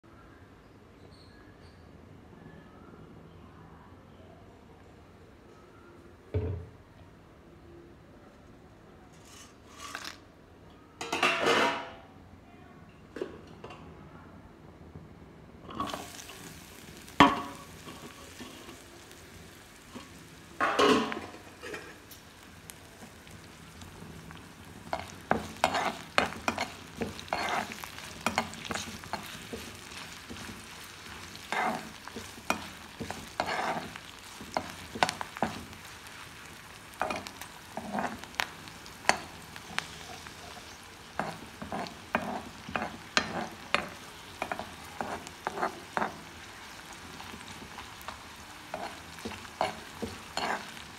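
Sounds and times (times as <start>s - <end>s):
steel spoon scraping a wok: 9.1s - 10.2s, 24.8s - 35.9s, 37.0s - 50.9s
onions sizzling in oil: 15.7s - 50.9s.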